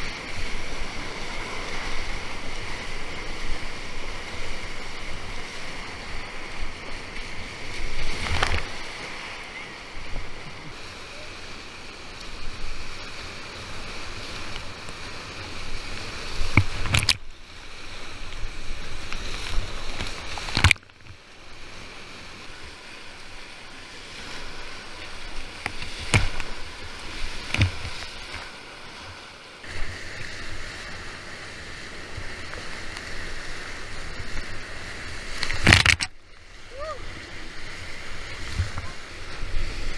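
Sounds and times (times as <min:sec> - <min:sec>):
splashes and knocks on boat: 0:25.7 - 0:26.5, 0:35.5 - 0:36.2.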